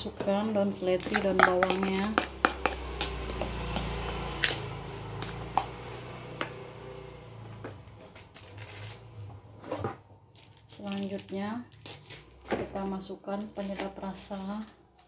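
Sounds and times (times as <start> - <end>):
spoon stirring food in bowl: 1.0 - 4.2
spoon tapping plastic bowl: 1.1 - 3.9.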